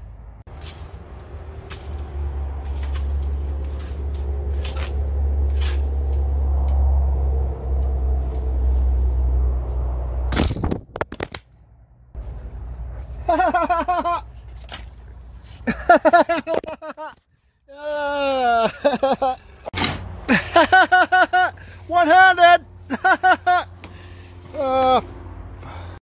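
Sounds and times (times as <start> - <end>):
low rumble: 0.0 - 13.3
rake scraping through wood chips: 2.6 - 6.3.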